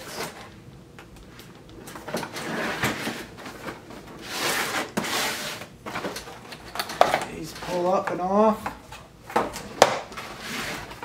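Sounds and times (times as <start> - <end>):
cardboard sliding and scraping: 2.3 - 5.7, 10.2 - 11.0.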